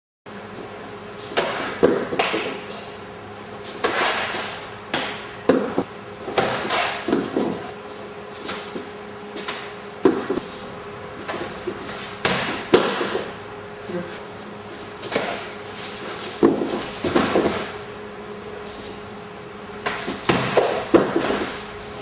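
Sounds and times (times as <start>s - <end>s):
steady low hum: 0.3s - 22.0s
feet stamping on a mat: 3.7s - 7.8s, 8.4s - 10.5s, 15.0s - 17.8s, 19.8s - 21.7s.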